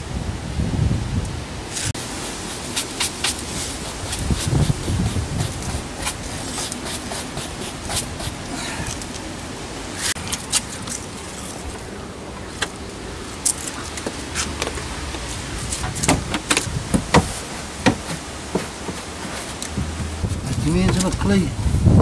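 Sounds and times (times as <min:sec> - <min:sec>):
steady background hiss: 0:00.0 - 0:22.0.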